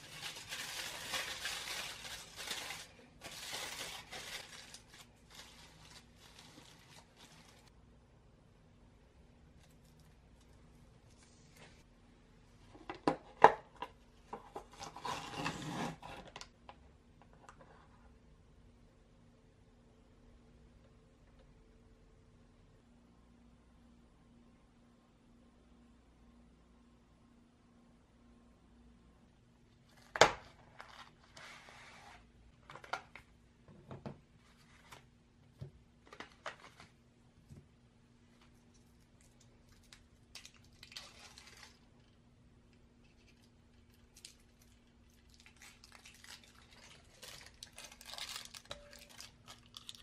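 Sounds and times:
wrapper rustle: 0.0 - 7.7, 38.7 - 41.9, 44.0 - 50.0.

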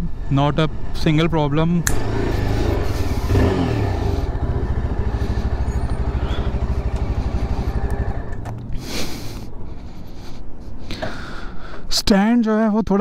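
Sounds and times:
motorcycle engine idling: 0.0 - 10.4.

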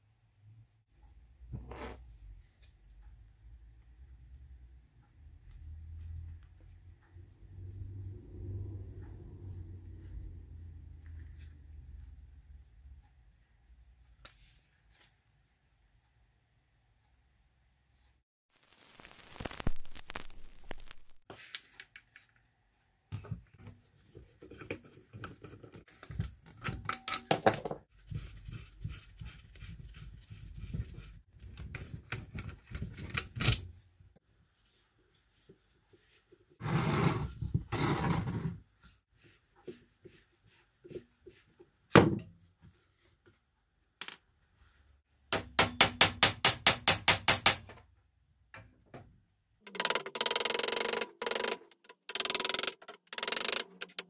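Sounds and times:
screwdriver scraping screws: 49.7 - 54.0.

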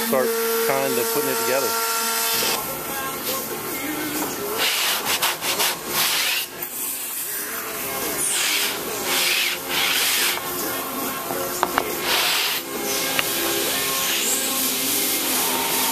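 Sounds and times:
hands rubbing on plywood: 8.2 - 10.8, 11.6 - 14.4
wood scraping on wood: 8.2 - 10.8, 11.4 - 14.3.

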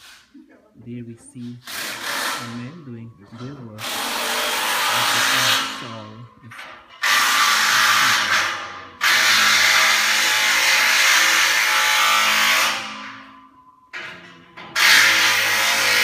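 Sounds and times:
power drill bursts: 1.6 - 2.5, 3.8 - 5.9, 7.0 - 12.8, 14.8 - 16.0.

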